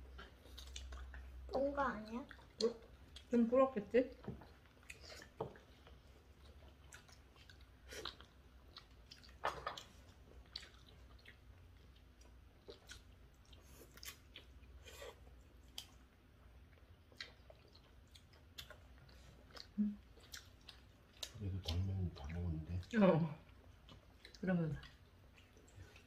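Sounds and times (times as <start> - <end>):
chewing and biting food: 0.0 - 3.4, 4.1 - 26.0
mouth smacks and light clicks: 0.2 - 1.3, 6.9 - 16.0.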